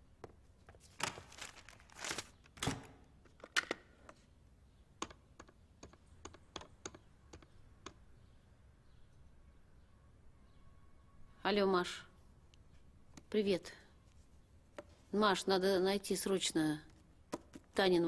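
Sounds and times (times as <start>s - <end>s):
rustling: 0.6s - 2.5s.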